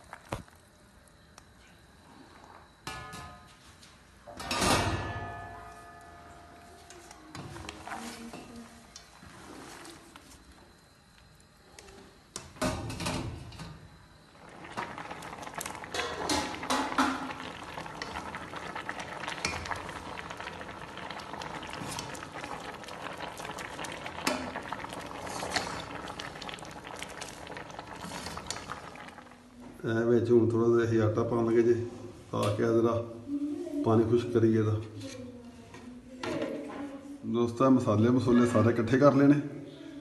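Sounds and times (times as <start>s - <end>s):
pot bubbling: 0.0s - 0.8s, 14.0s - 29.8s.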